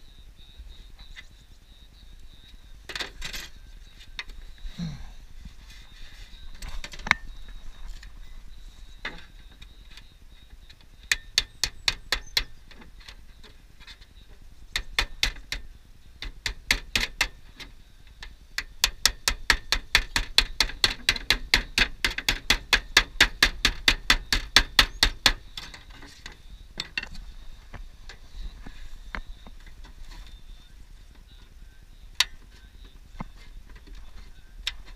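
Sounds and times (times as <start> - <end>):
metallic taps on roofing sheet: 14.8 - 17.4, 18.6 - 27.1.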